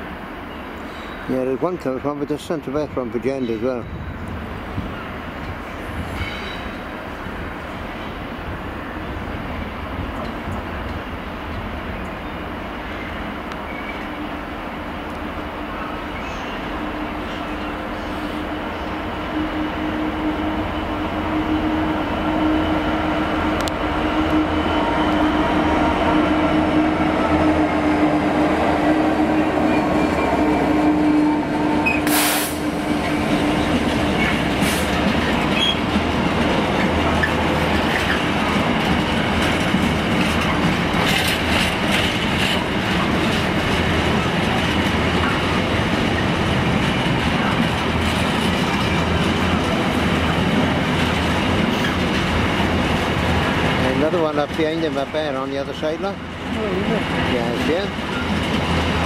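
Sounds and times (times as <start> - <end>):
rail joint clicks: 0.7 - 8.3, 9.5 - 26.9, 31.8 - 59.0
locomotive engine drone: 6.8 - 59.0
wagon wheels rumbling on rails: 32.8 - 59.0.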